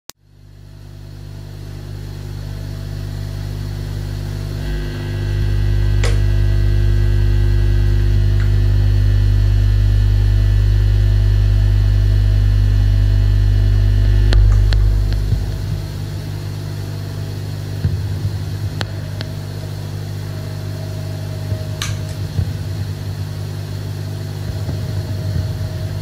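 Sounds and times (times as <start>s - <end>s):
low electric drone: 0.2s - 26.0s
click: 6.0s - 6.2s.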